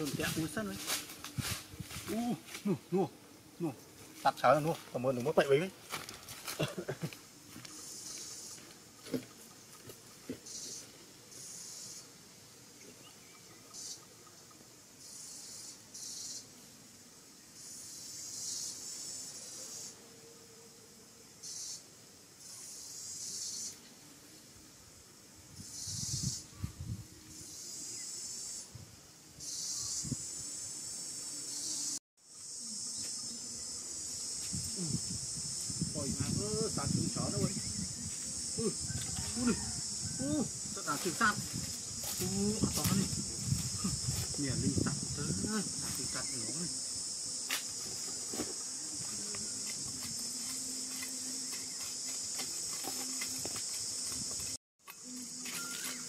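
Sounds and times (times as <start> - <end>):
insects buzzing shrilly: 0.0 - 56.0
knife scraping dry soil: 47.4 - 56.0.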